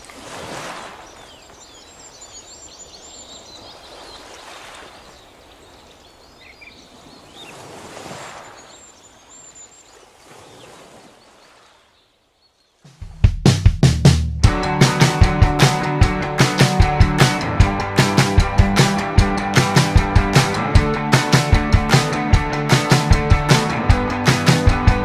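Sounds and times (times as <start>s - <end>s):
birds chirping: 0.8s - 13.0s
rock song with heavy beat: 13.1s - 25.0s.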